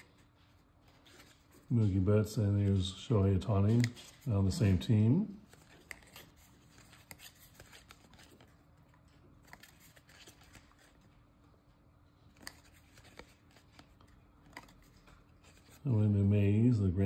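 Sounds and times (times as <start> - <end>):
trading cards flipped by hand: 0.0 - 1.7, 3.5 - 4.8, 5.4 - 11.2, 12.2 - 15.8.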